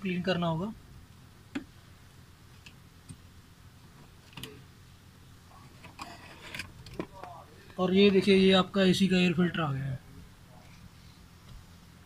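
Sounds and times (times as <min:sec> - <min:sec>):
filter scraping rustle: 0:05.5 - 0:08.4.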